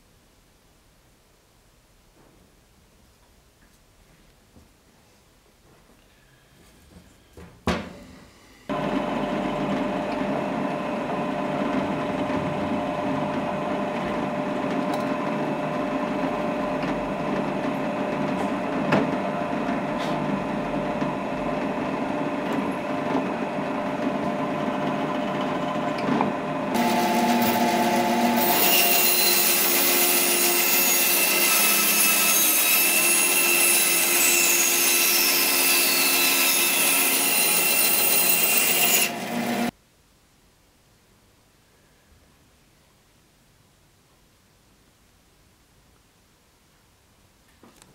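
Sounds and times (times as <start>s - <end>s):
drill press motor running: 8.7s - 30.6s
band saw cutting wood: 8.7s - 39.7s.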